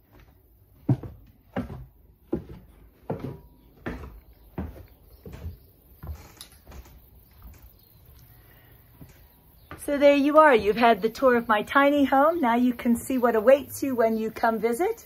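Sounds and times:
footsteps on wooden stairs: 0.0s - 8.1s, 8.9s - 11.4s.

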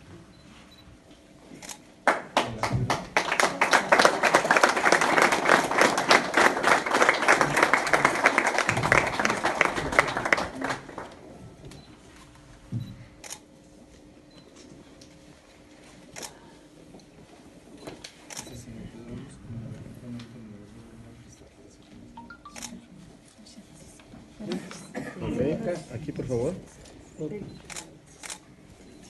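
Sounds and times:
small crowd clapping: 2.0s - 11.4s.

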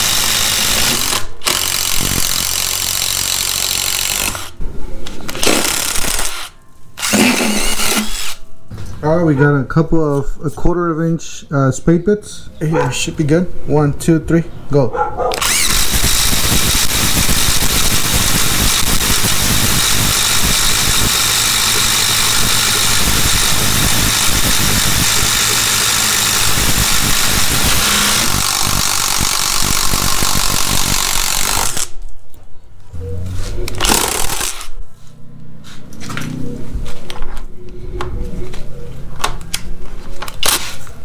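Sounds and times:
impact drivers hammering into wood: 0.0s - 4.5s, 5.3s - 8.4s, 15.4s - 31.9s.

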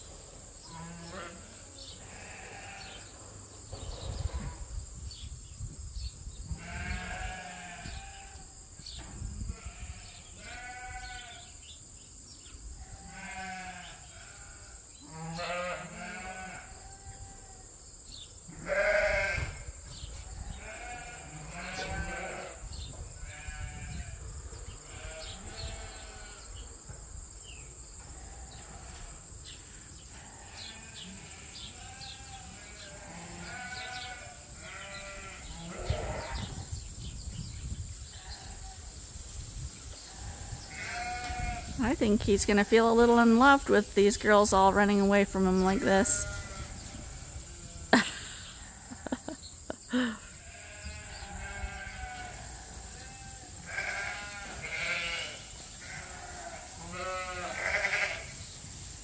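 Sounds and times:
sheep bleating: 0.7s - 3.0s, 6.6s - 8.4s, 9.5s - 11.5s, 12.9s - 16.7s, 18.6s - 19.6s, 20.5s - 22.6s, 23.3s - 24.2s, 24.9s - 26.4s, 30.4s - 36.5s, 40.1s - 41.6s, 49.9s - 58.4s.

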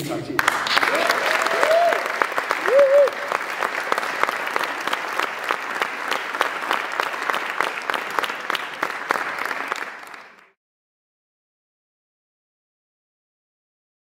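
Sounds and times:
audience applauding: 0.4s - 10.6s.

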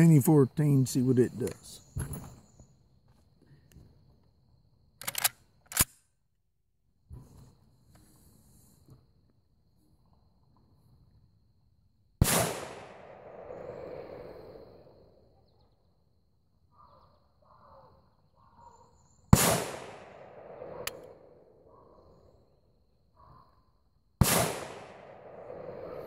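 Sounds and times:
rifle shots with echo: 12.2s - 13.7s, 19.3s - 21.3s, 24.2s - 26.0s.

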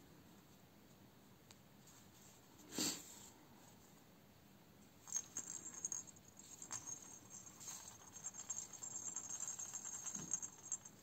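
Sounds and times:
baby rattle jingling: 5.1s - 11.0s.

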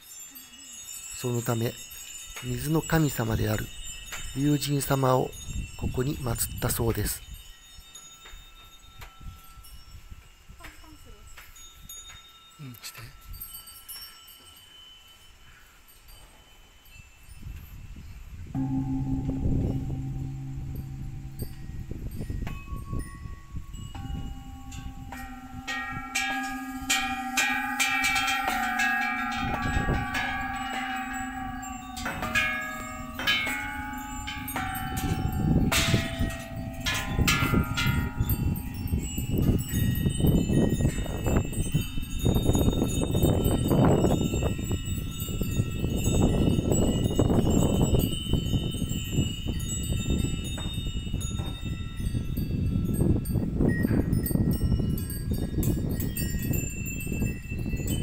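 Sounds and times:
metal bells struck ringing: 0.0s - 10.0s, 18.5s - 58.0s
low rumbling noise: 18.6s - 39.7s.

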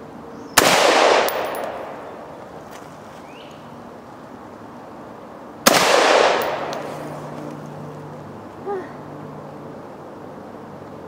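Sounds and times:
rifle shot with echo: 0.6s - 2.4s, 5.6s - 7.0s.

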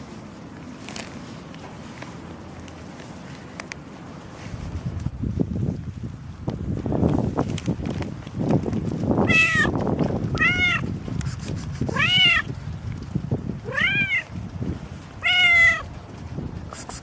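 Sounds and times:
cat meowing: 9.2s - 9.7s, 10.3s - 10.9s, 11.9s - 12.5s, 13.6s - 14.3s, 15.2s - 15.9s.

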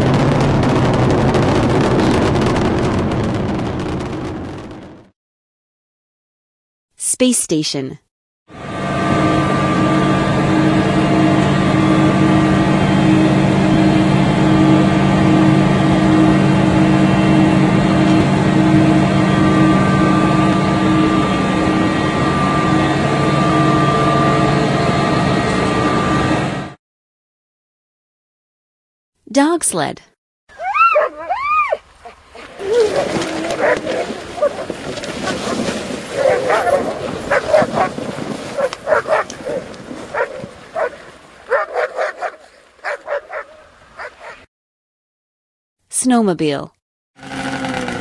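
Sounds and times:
steady mechanical hum: 8.6s - 26.7s
sled dogs barking and yipping: 30.5s - 44.5s.

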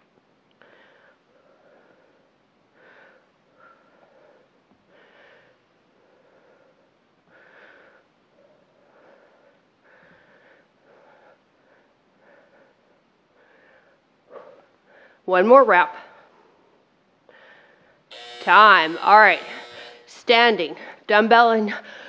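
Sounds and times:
woman breathing rhythmically: 0.0s - 15.3s, 16.0s - 20.1s, 20.8s - 22.0s.

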